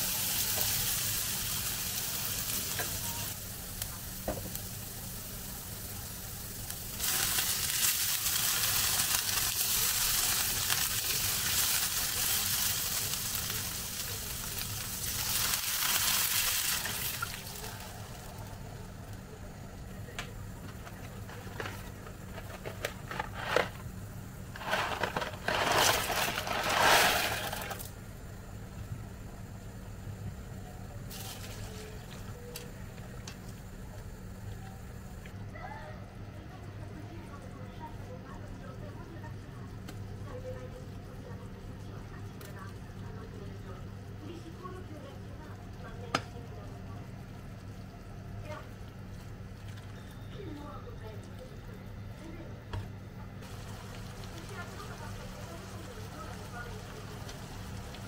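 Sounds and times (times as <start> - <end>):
potatoes sizzling in a frying pan: 0.0 - 19.2, 20.0 - 32.8, 53.4 - 58.0.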